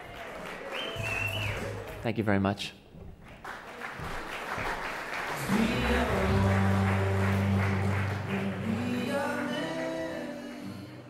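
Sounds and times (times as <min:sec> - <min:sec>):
audience applauding: 0:00.0 - 0:02.2, 0:03.2 - 0:09.7.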